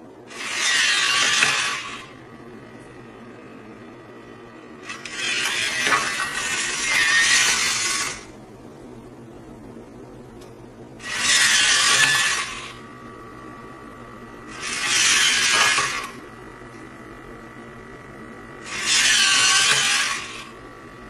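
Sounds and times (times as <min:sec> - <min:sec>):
faint steady whine: 0:00.0 - 0:21.0
servo motors whirring: 0:00.3 - 0:02.9, 0:04.8 - 0:08.3, 0:11.0 - 0:13.1, 0:14.4 - 0:16.7, 0:18.6 - 0:20.6.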